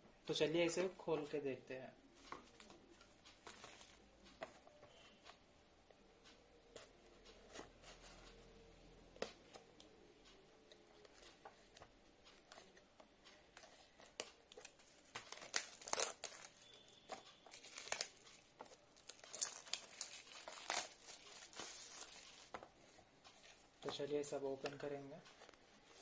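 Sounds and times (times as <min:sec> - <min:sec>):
scissors cutting plastic wrap: 0:14.0 - 0:22.5
plastic wrap crinkling and tearing: 0:14.0 - 0:22.6.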